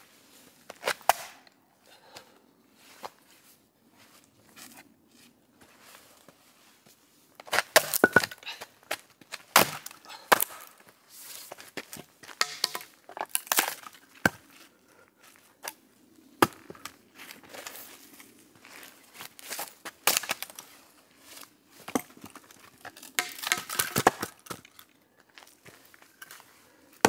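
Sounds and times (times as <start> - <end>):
hard objects clinking and knocking: 7.8 - 8.4, 12.4 - 12.9, 23.2 - 24.0.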